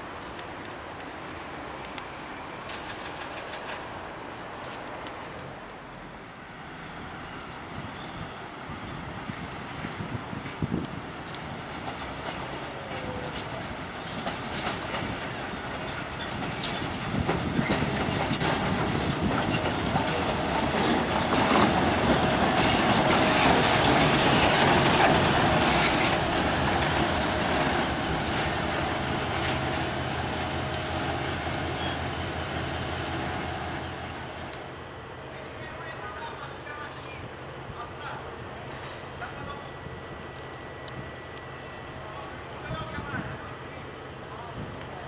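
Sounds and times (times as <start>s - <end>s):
train wheels clicking on track: 1.9s - 4.0s, 6.9s - 34.7s
diesel locomotive engine running: 6.3s - 45.0s.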